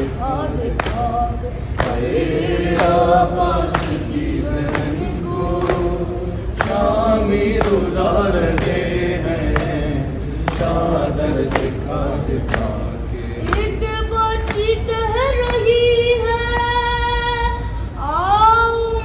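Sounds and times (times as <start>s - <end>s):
men singing a lament in unison: 0.0s - 14.0s.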